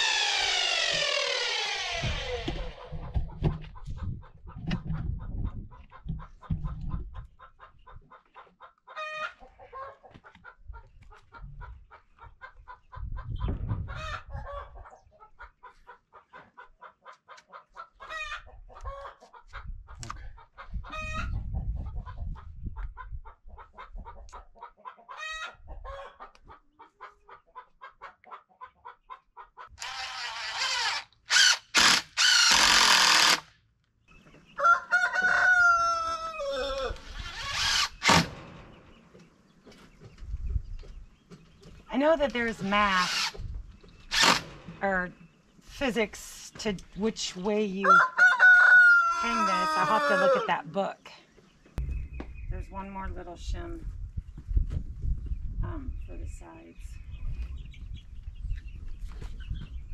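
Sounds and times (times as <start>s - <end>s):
chickens clucking: 2.1s - 29.8s, 34.1s - 37.1s, 37.9s - 52.9s, 54.4s - 59.9s.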